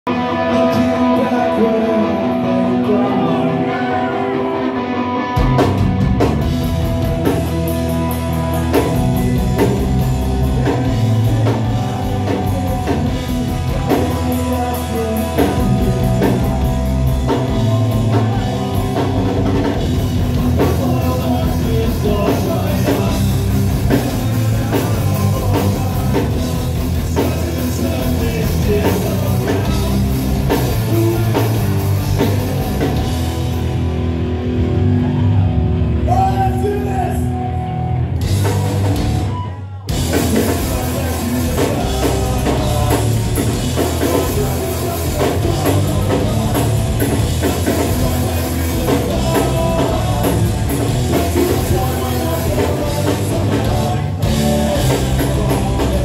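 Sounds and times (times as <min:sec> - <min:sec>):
bass guitar: 0:00.0 - 0:56.0
electric guitar: 0:00.0 - 0:56.0
drum kit: 0:04.6 - 0:56.0.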